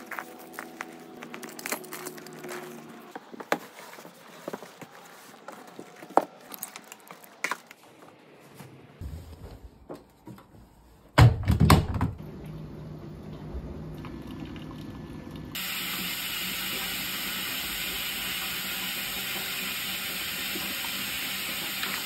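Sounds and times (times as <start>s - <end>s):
toys rustling: 0.0s - 11.0s.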